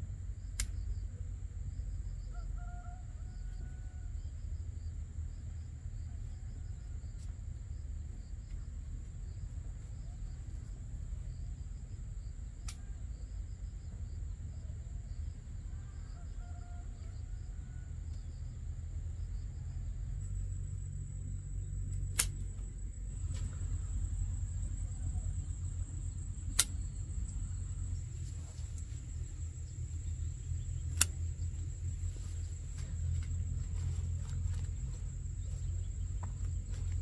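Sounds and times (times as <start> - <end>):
insects droning: 0.0 - 37.0
low rumble: 18.0 - 37.0
sharp clicks: 21.9 - 22.6, 26.5 - 26.9, 30.8 - 31.4.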